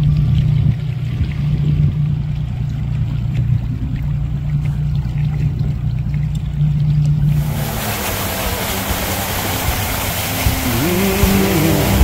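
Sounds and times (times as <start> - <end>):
outboard motor humming: 0.0 - 12.0
rushing water wash: 7.2 - 12.0.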